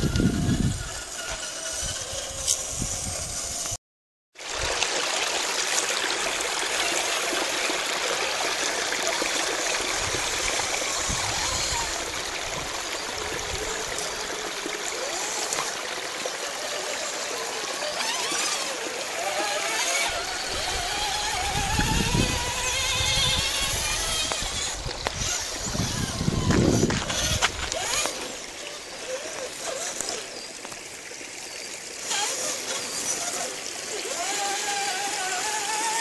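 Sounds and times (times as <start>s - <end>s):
creek running over rocks: 4.4s - 36.0s.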